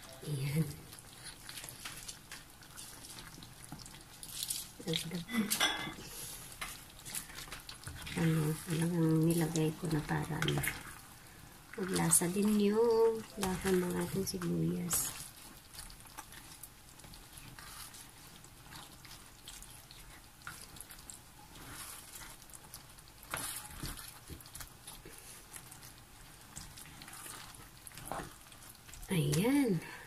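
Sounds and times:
sauce bubbling: 0.0 - 30.0
spatula scraping frying pan: 12.0 - 29.0.

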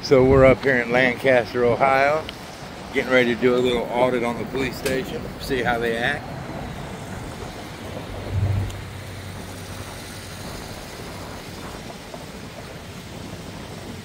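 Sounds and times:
road traffic: 0.0 - 14.0
wind buffeting microphone: 0.0 - 14.0
low rumble: 6.3 - 13.8.

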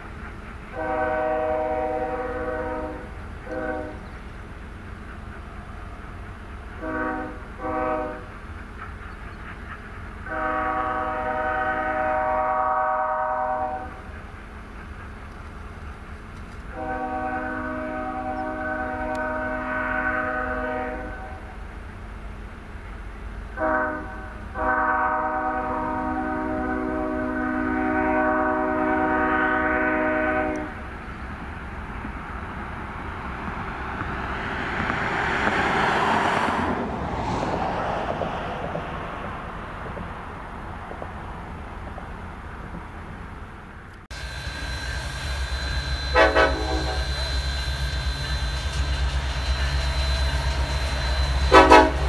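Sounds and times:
distant train horn: 0.0 - 4.3, 5.1 - 15.0, 16.6 - 21.7, 23.5 - 31.4, 44.1 - 52.0
far-off train rumble: 0.0 - 52.0
locomotives idling: 38.6 - 52.0
short horn toot: 44.1 - 52.0.

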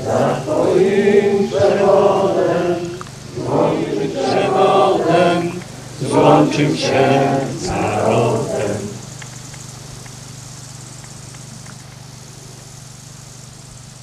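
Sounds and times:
voices singing a slow hymn: 0.0 - 10.5.

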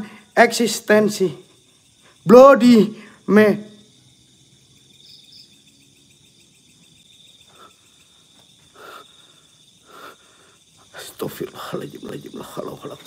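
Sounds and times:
crickets trilling: 0.0 - 13.0.

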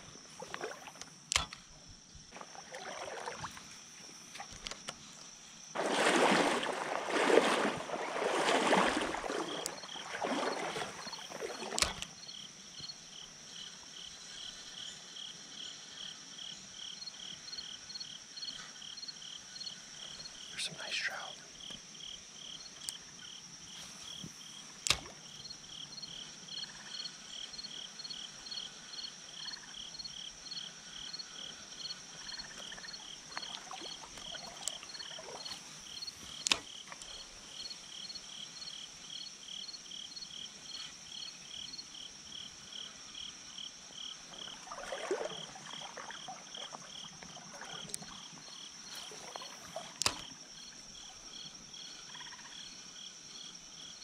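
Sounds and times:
insects chirping: 0.0 - 54.0
sharp clicks: 1.0 - 1.7, 24.8 - 25.1.

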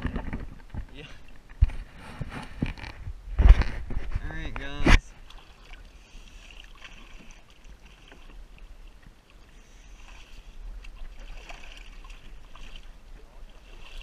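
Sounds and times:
shallow water splashing and lapping: 0.0 - 4.2, 5.0 - 14.0
wind rumble on microphone: 0.0 - 5.1.

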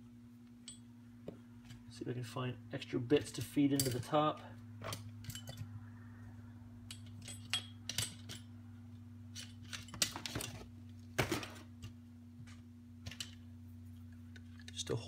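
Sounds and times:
steady low hum: 0.0 - 15.0
small metal tools clicking: 4.9 - 5.7, 6.8 - 8.5.

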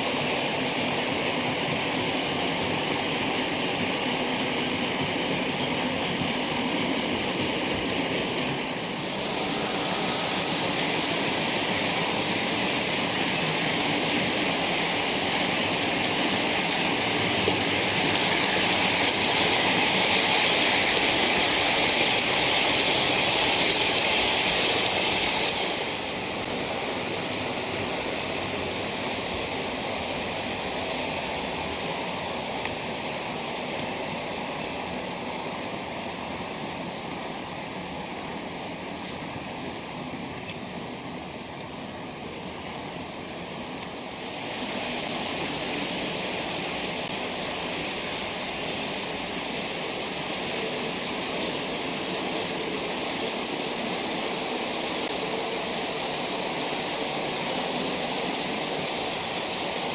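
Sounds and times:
model train wheels rumbling on rail: 0.0 - 59.9.

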